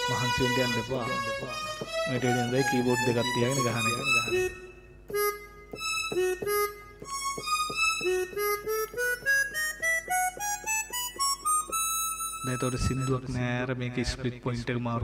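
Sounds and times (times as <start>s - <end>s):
keyboard harmonica voice notes: 0.0s - 13.4s.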